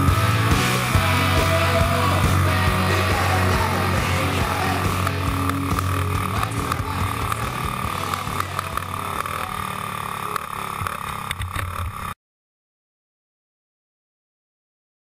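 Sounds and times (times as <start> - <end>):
kart engine running: 0.0 - 12.2.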